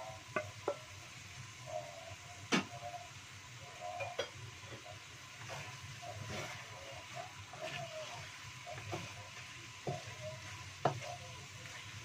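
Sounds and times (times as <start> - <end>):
food sizzling: 0.0 - 12.0
spatula scraping a wok: 4.7 - 12.0
spatula knocking against pan: 9.8 - 11.2.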